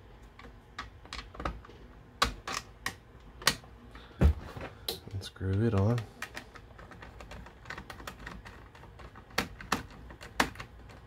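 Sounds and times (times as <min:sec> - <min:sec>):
screwdriver ticking and scraping: 0:05.4 - 0:11.0.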